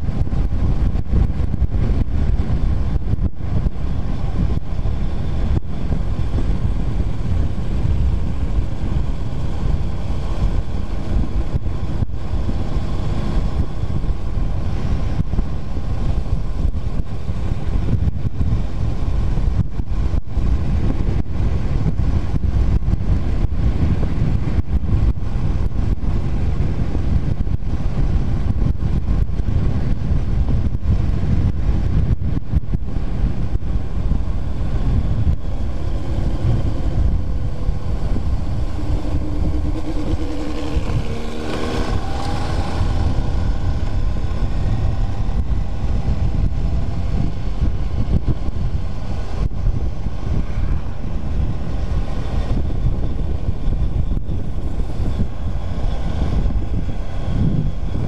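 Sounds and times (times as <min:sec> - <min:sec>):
motorcycle engine cruising: 0:00.0 - 0:58.0
wind buffeting microphone: 0:00.0 - 0:58.0.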